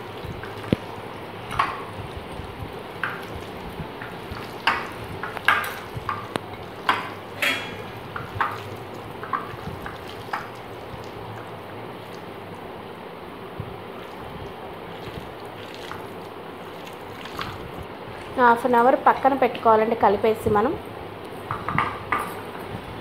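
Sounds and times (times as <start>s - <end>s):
wet squelches and slaps: 8.2s - 12.3s, 14.0s - 18.4s
hand squishing raw chicken: 14.0s - 17.8s.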